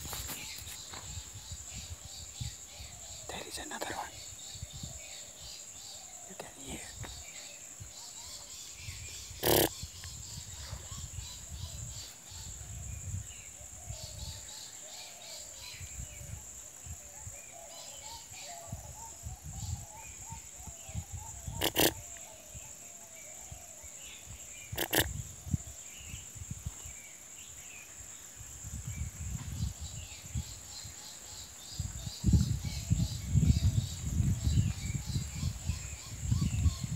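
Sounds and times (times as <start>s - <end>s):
birds chirping: 0.0s - 12.4s, 17.6s - 22.4s, 23.3s - 25.2s.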